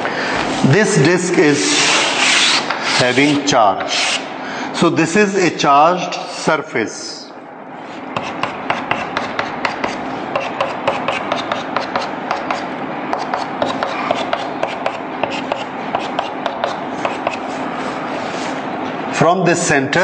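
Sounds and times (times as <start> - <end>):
chalk tapping and scratching: 1.7 - 4.2, 8.2 - 18.6.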